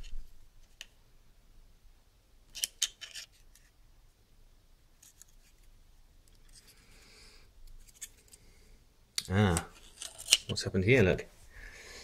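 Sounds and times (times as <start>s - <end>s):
plastic clicks and scrapes: 9.5s - 10.6s.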